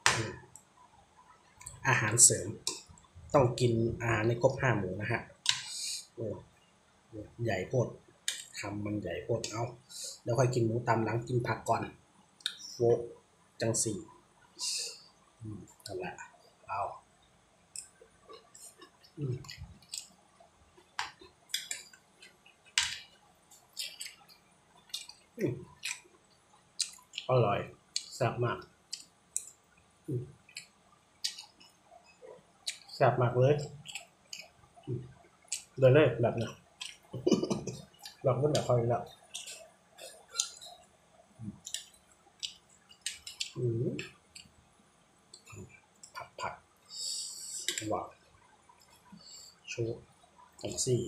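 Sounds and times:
wet lip smacks and chewing: 26.8 - 27.3, 36.8 - 37.1, 39.3 - 40.8.

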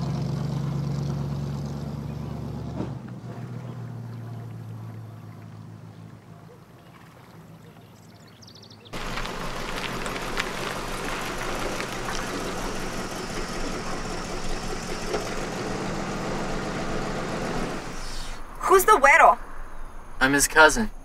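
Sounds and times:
car engine running: 0.0 - 6.6, 9.0 - 18.3
road noise: 0.0 - 21.0.

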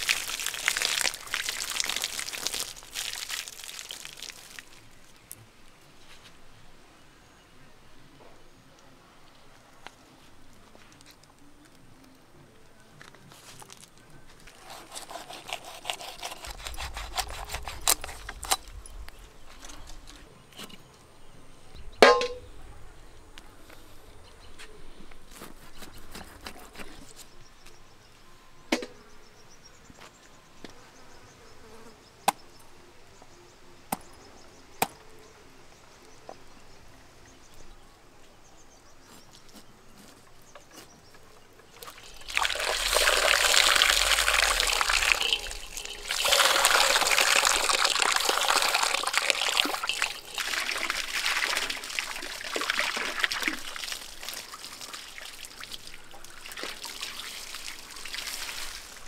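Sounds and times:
hose water splashing: 0.0 - 5.2, 14.4 - 18.8, 41.8 - 59.0.

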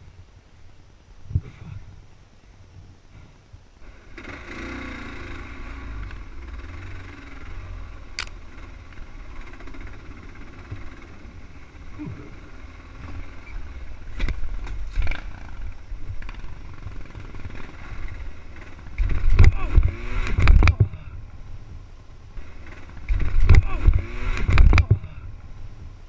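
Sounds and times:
dirt bike engine running: 3.8 - 26.0
bike knocks and rattles: 12.9 - 21.2, 22.4 - 25.2.

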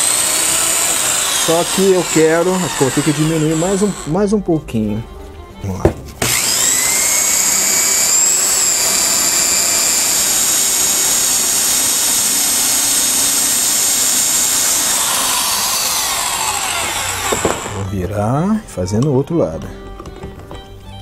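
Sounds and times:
power tool motor running: 0.0 - 4.2, 6.2 - 17.9.

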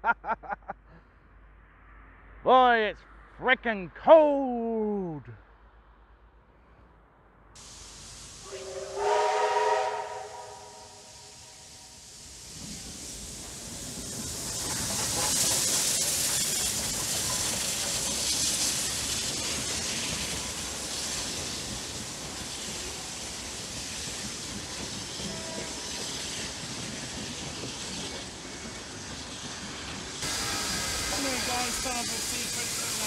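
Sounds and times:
steam locomotive hissing exhaust: 7.6 - 33.0
carriages rolling on rails: 12.0 - 33.0.

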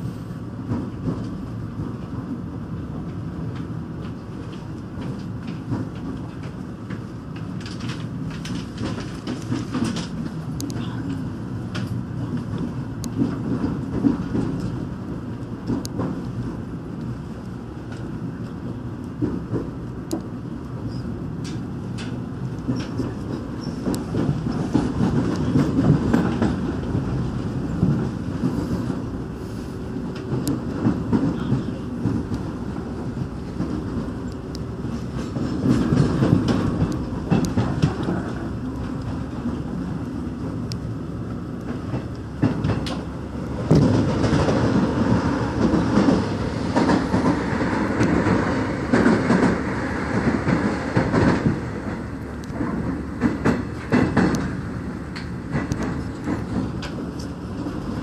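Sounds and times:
train passing alongside: 0.0 - 58.0
train wheels rumbling on rails: 0.0 - 58.0
clickety-clack over rail joints: 0.2 - 58.0.

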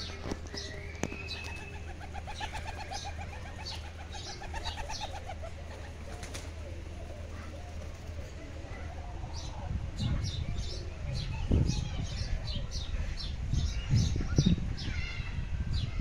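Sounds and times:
pigeons cooing: 0.0 - 11.1.

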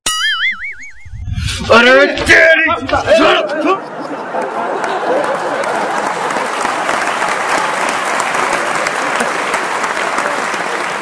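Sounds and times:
crowd clapping: 3.9 - 11.0.

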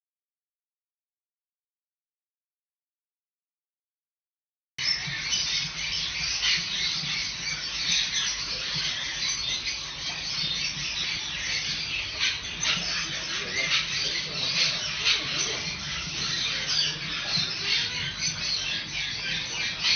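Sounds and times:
birds squawking and chirping: 4.8 - 19.9.

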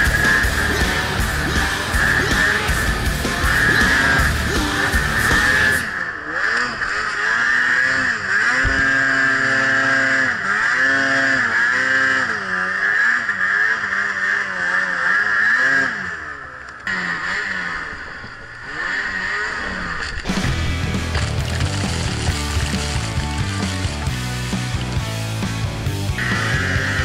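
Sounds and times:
high steady whine: 0.0 - 6.3
snowmobile engine revving: 0.0 - 27.0.

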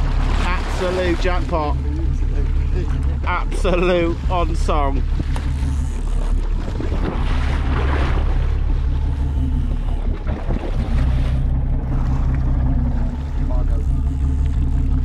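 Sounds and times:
boat engine rumbling: 0.0 - 15.0
water washing against hull: 0.0 - 15.0.

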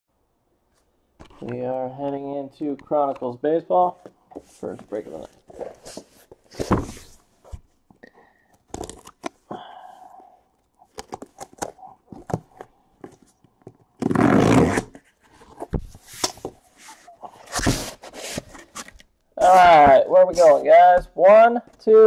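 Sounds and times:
tape tearing: 14.0 - 15.0.

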